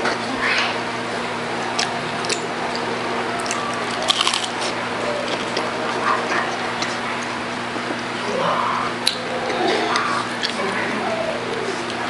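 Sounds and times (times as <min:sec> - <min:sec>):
chewing and wet mouth sounds: 0:01.6 - 0:12.0
crisp crunches: 0:03.4 - 0:05.7.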